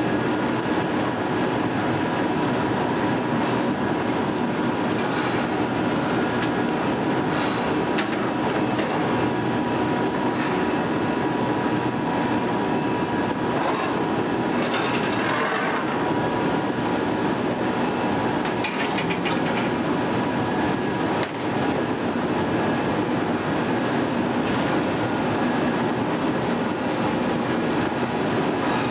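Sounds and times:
industrial furnace noise: 0:00.0 - 0:28.9.

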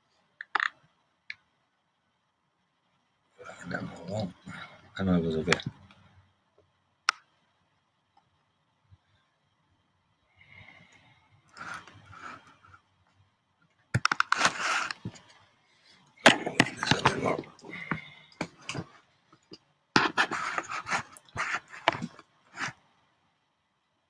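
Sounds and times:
objects clattering and scraping: 0:14.0 - 0:15.4, 0:16.2 - 0:22.8.

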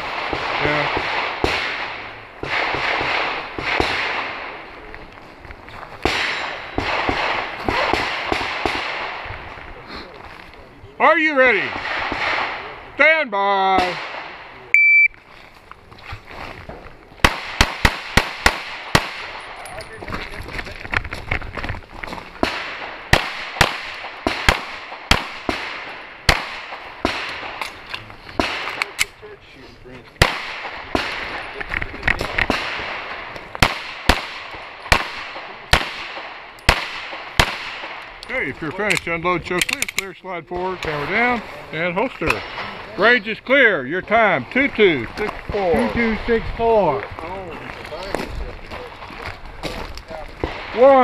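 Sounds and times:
pistol shots echoing: 0:00.0 - 0:04.7, 0:06.0 - 0:09.3, 0:13.8 - 0:14.7, 0:17.2 - 0:19.7, 0:22.4 - 0:27.8, 0:28.4 - 0:29.2, 0:30.2 - 0:38.9, 0:42.2 - 0:42.9.

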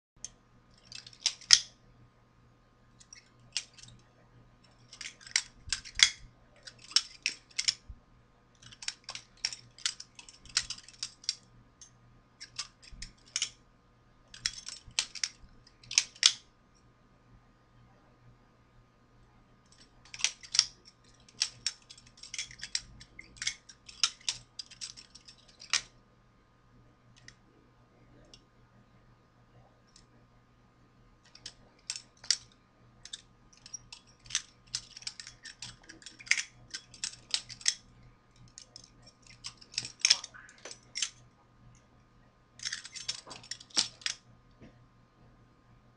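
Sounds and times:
butterfly knife handles clacking: 0:04.6 - 0:07.9, 0:08.6 - 0:11.4, 0:19.7 - 0:25.9, 0:31.3 - 0:37.8, 0:38.4 - 0:41.2, 0:42.6 - 0:44.2.

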